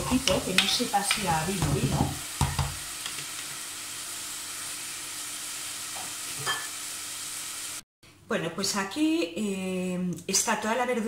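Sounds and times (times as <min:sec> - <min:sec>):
vegetables and wine sizzling in pot: 0:00.0 - 0:07.8.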